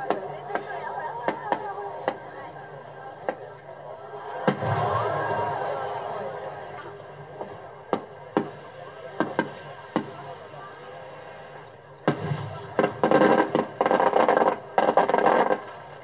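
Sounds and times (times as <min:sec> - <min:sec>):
fireworks bangs and crackling: 0:04.3 - 0:16.0.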